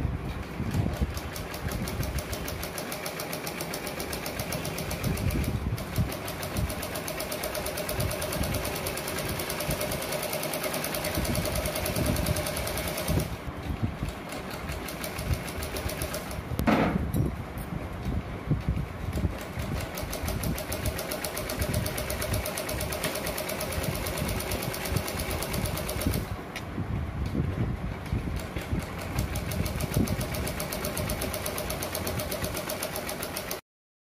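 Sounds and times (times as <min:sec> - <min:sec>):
sewing machine stitching: 0:00.8 - 0:13.5, 0:19.4 - 0:26.3, 0:28.8 - 0:33.6.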